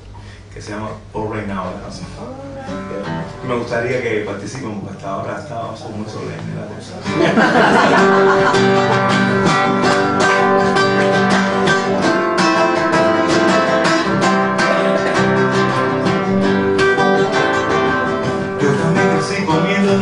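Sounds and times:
acoustic guitar strumming: 0:02.2 - 0:04.4, 0:06.9 - 0:20.0.

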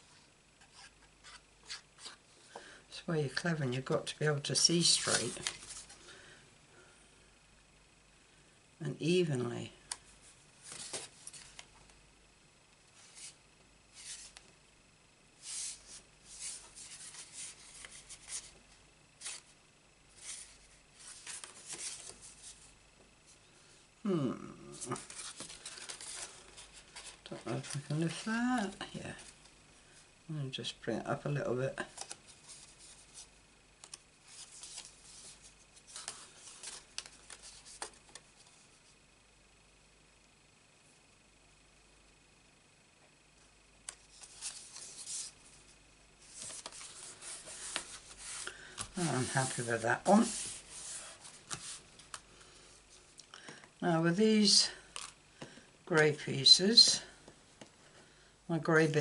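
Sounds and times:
card stock rustling: 0:04.8 - 0:06.0, 0:10.6 - 0:11.7, 0:20.2 - 0:22.6, 0:24.8 - 0:29.4, 0:31.8 - 0:38.5, 0:43.9 - 0:45.4, 0:46.2 - 0:52.3
card stock rustling and clicking: 0:25.0 - 0:28.2, 0:33.8 - 0:38.3.

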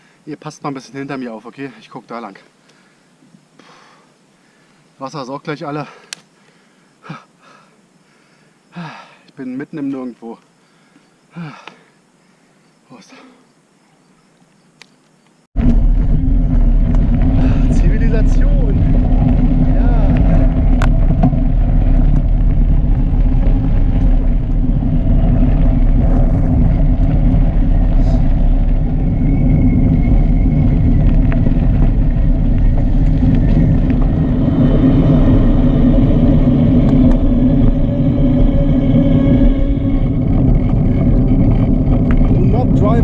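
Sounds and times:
tyres rolling on gravel and asphalt: 0:15.6 - 0:43.0
wind rushing over microphone: 0:15.6 - 0:43.0.

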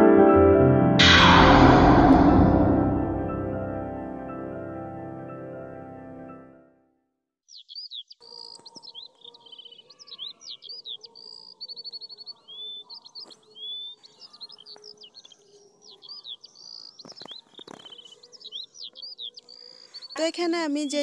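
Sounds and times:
small birds chirping: 0:07.5 - 0:21.0.

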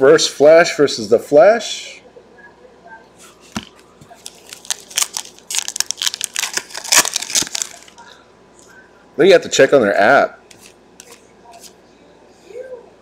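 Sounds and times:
foil pack crinkling and tearing: 0:04.2 - 0:08.0.

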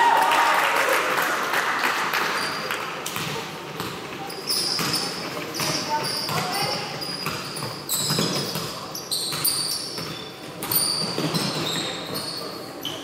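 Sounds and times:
sneakers squeaking on court: 0:02.4 - 0:13.0
basketball bouncing: 0:03.1 - 0:12.2.

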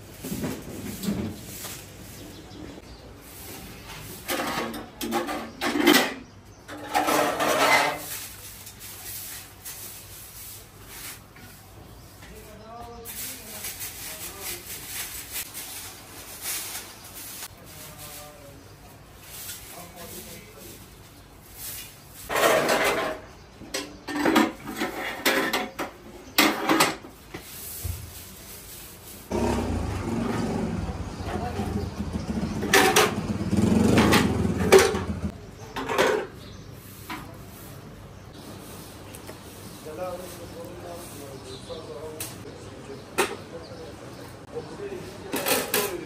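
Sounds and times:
stools scraping on tiles: 0:00.0 - 0:02.2, 0:03.2 - 0:12.4, 0:21.7 - 0:41.2
broom sweeping tiled floor: 0:00.0 - 0:31.9, 0:33.8 - 0:42.5.

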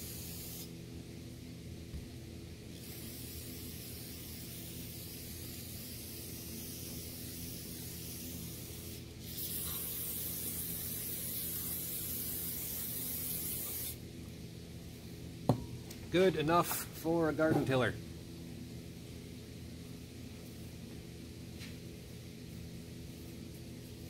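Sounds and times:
aerosol spray can hissing: 0:00.0 - 0:00.7, 0:02.8 - 0:14.0.

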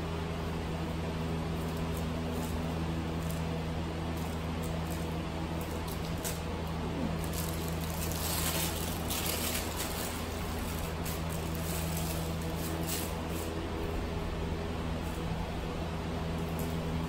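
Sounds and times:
steady low hum: 0:00.0 - 0:17.0
plastic piping bag squishing: 0:04.2 - 0:13.6.

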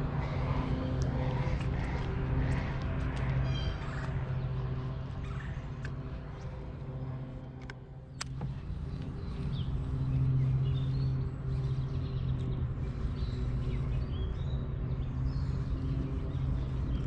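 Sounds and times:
low motor-like hum: 0:00.0 - 0:17.0
small birds chirping: 0:08.0 - 0:17.0.

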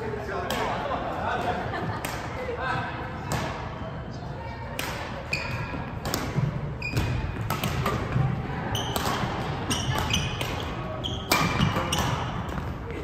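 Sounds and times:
rackets striking shuttlecock: 0:04.8 - 0:12.8
shoes squeaking on court floor: 0:05.3 - 0:13.0.

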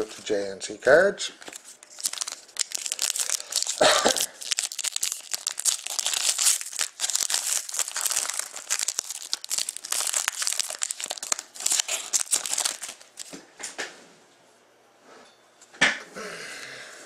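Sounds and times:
foil wrapper crinkling and tearing: 0:01.4 - 0:13.4.

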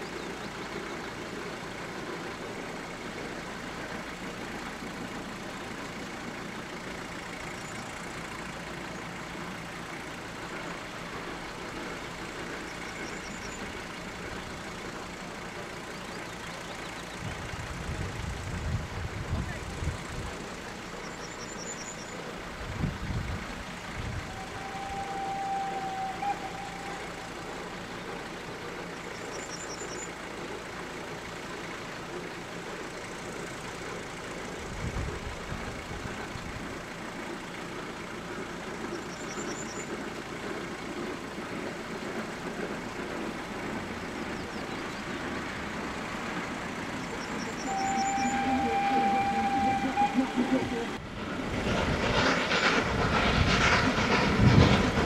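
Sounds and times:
faint vehicle engine: 0:00.0 - 0:55.0
steady whistle tone: 0:24.2 - 0:28.2, 0:47.0 - 0:51.0.

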